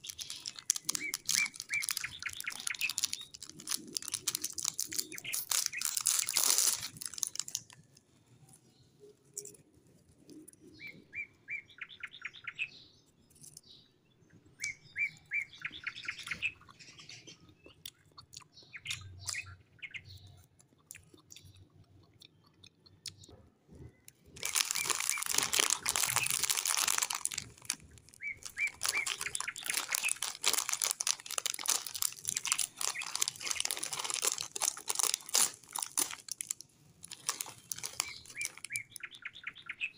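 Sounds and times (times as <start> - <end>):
plastic wrappers crinkling: 0.0 - 8.0, 24.4 - 39.0
birds chirping: 0.0 - 9.6, 10.2 - 39.9.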